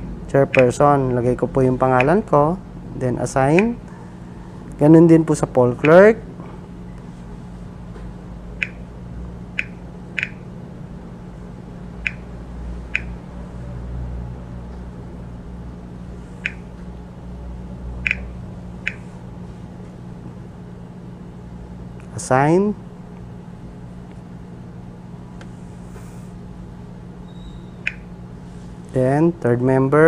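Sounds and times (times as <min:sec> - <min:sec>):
steady low hum: 0:00.0 - 0:30.0
touchscreen key clicks: 0:09.6 - 0:10.4.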